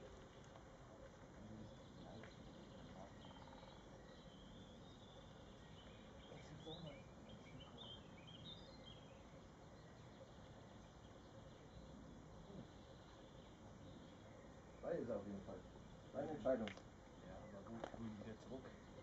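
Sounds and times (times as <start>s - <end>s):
faint bird chirps: 0.0s - 19.0s.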